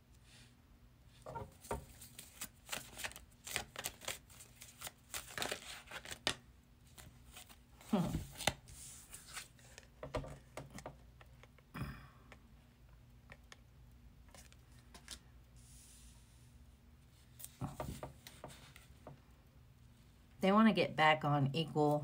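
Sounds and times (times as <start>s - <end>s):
tarot cards tapping and rustling: 17.4s - 19.2s.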